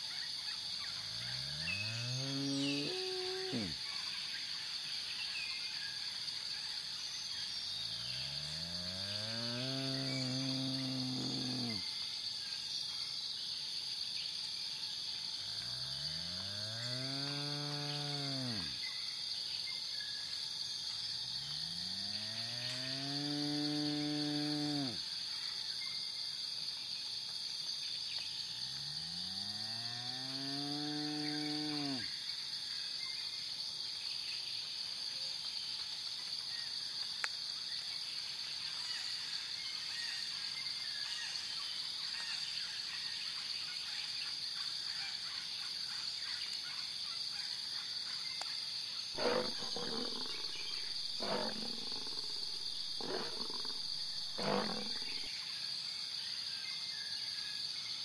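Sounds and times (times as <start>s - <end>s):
lion roaring grunts: 2.4s - 3.8s, 49.2s - 55.3s
wildebeest nasal call: 49.2s - 55.3s.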